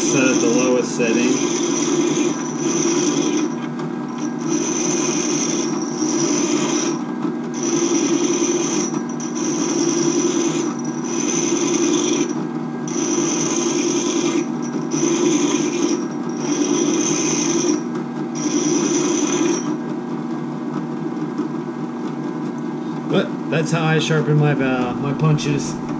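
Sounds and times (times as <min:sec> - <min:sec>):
metal grinding: 0:00.0 - 0:19.8
drill press running: 0:00.0 - 0:25.9.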